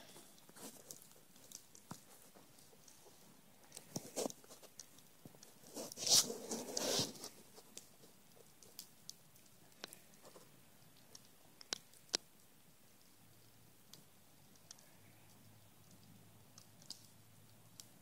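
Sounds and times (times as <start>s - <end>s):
bonfire crackling and popping: 0.0s - 18.0s.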